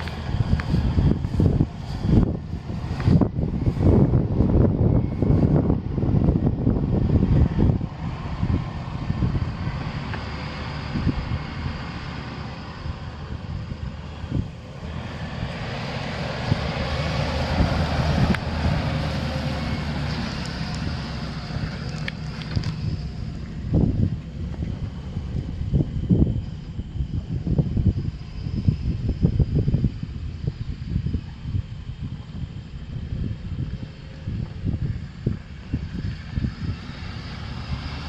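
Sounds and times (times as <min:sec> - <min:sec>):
pickup truck engine running: 0:00.0 - 0:28.1
wind buffeting microphone: 0:00.0 - 0:38.0.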